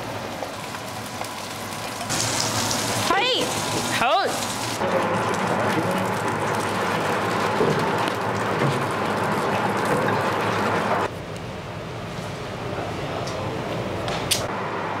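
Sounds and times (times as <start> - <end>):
food sizzling in oil: 0.0 - 11.1.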